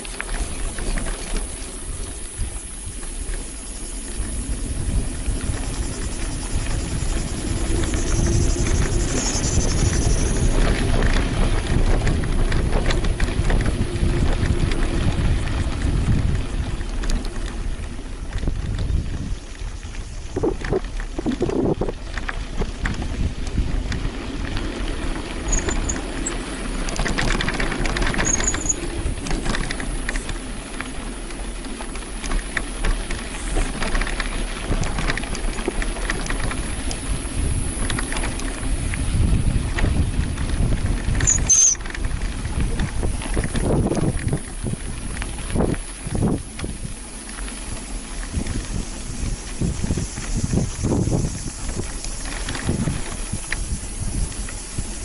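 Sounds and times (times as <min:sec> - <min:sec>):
bicycle rolling and rattling: 0:00.0 - 0:55.0
brief high squeaks: 0:41.2 - 0:41.8.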